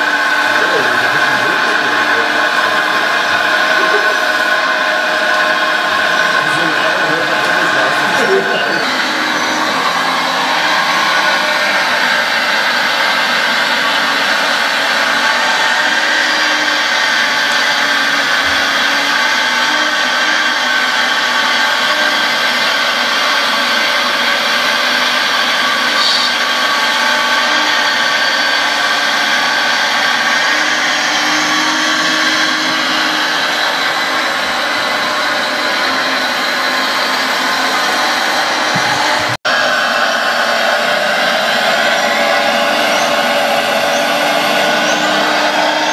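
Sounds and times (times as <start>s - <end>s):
hydraulic pump whining: 0.0s - 45.9s.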